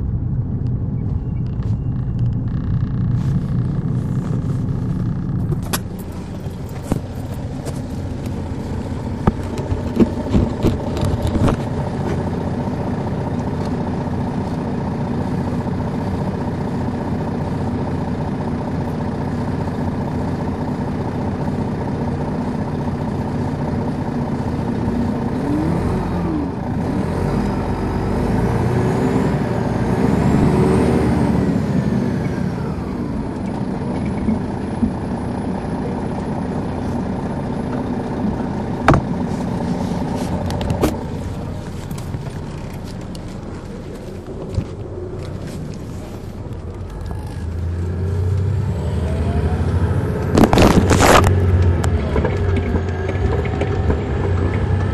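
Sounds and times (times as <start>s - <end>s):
diesel coach engine running: 0.0s - 54.9s
engine whine: 0.0s - 54.9s
sharp clicks and rattles: 1.4s - 8.4s, 9.2s - 12.2s.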